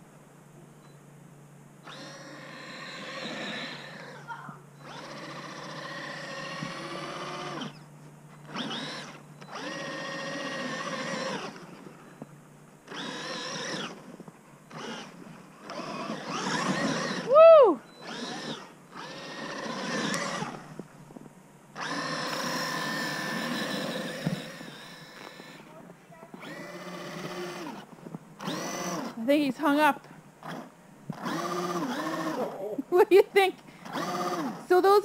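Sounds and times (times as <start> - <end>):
electric motor whining: 1.8 - 20.9, 21.7 - 29.4, 30.4 - 32.8, 33.4 - 35.0
rising and falling whoop: 17.2 - 17.9.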